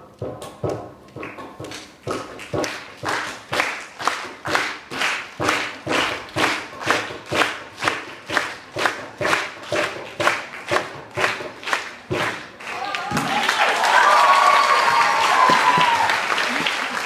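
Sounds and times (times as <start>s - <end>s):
hand-tapped percussion beat: 0.0s - 13.4s, 14.9s - 16.1s
hands clapping: 1.1s - 17.0s.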